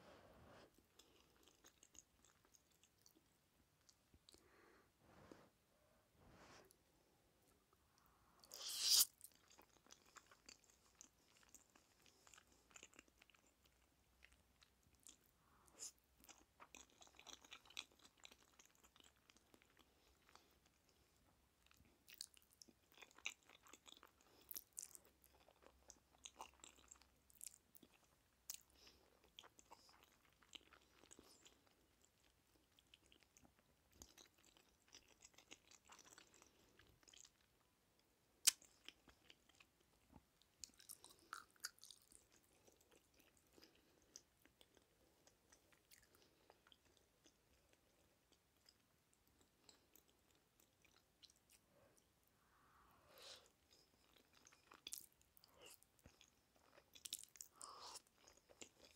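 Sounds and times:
wet chewing sounds: 0:53.5 - 0:58.9.

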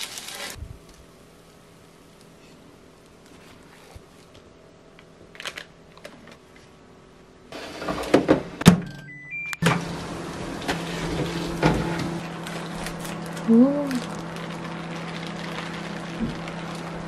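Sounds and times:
microwave oven humming: 0:07.5 - 0:17.0.

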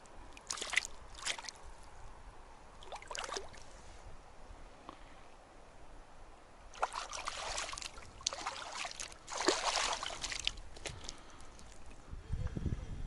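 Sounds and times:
water splashing and sloshing: 0:00.0 - 0:04.0, 0:06.7 - 0:12.0.

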